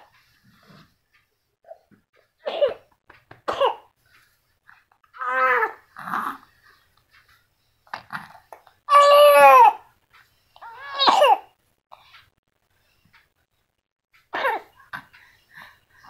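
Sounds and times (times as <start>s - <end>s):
baby crying: 5.2s - 6.4s, 8.9s - 9.9s, 10.6s - 11.4s.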